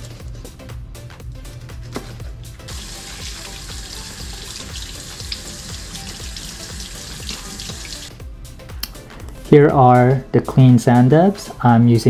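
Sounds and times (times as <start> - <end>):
background music: 0.0 - 12.0
faucet water splashing in sink: 2.7 - 8.1.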